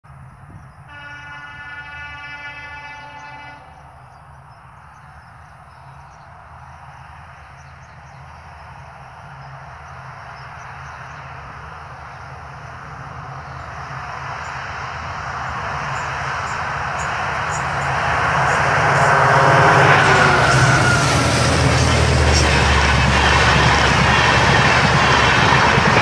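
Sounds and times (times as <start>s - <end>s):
train rumbling: 0.1s - 26.0s
train horn blast: 0.9s - 3.8s, 18.4s - 21.9s.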